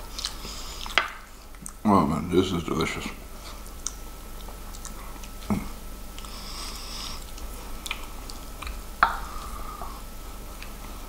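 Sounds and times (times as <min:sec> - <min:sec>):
chewing and mouth clicks: 0:00.1 - 0:01.8, 0:03.5 - 0:06.3, 0:07.0 - 0:10.0.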